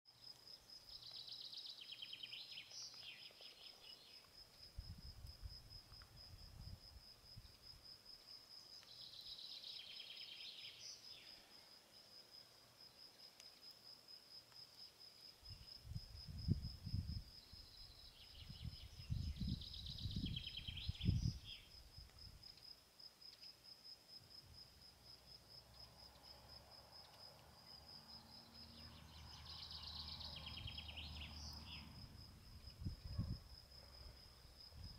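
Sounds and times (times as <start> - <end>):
lower chirping call: 28.4 - 32.0.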